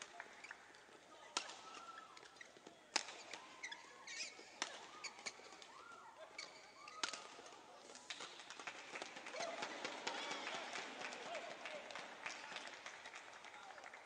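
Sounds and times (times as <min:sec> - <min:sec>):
shoes squeaking on court floor: 0:00.0 - 0:08.3
racket hitting shuttlecock: 0:01.4 - 0:05.7, 0:06.9 - 0:08.5.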